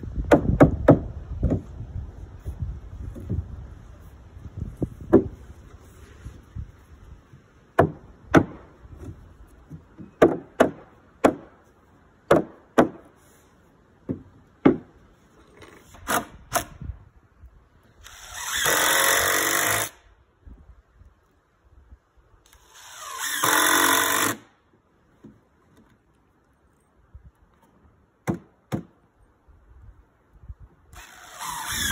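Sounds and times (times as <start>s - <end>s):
cordless drill driving screws: 18.0s - 20.0s, 22.5s - 24.4s, 30.9s - 31.9s.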